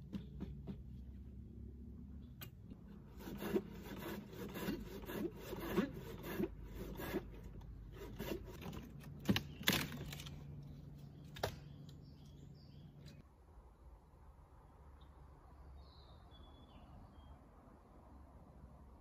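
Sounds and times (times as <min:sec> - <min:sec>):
hand saw cutting wood: 0:03.0 - 0:10.1.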